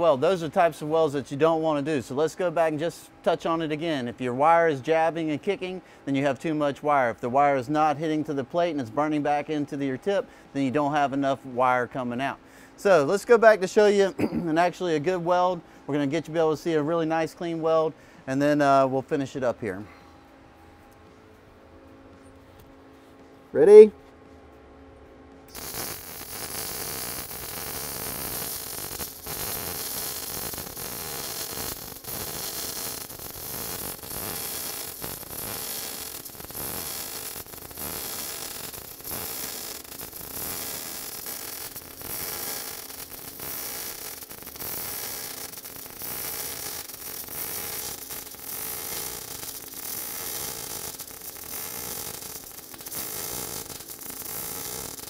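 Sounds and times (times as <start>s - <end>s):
welding arc crackling: 0.0s - 2.7s, 25.5s - 55.0s.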